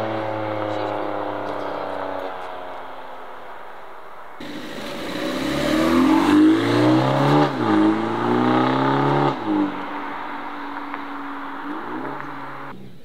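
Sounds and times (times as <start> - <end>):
car engine and exhaust accelerating: 0.0 - 13.0.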